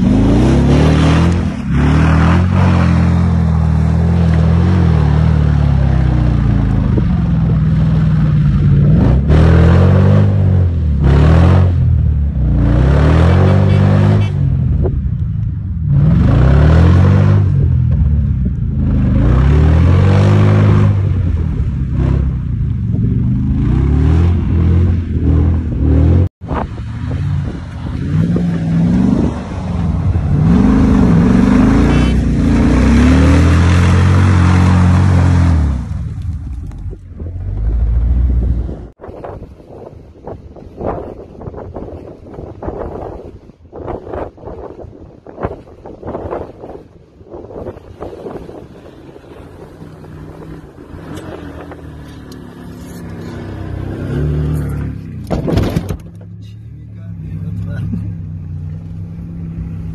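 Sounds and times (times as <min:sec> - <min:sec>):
off-road vehicle engine revving: 0:00.0 - 0:39.0, 0:45.4 - 0:59.9.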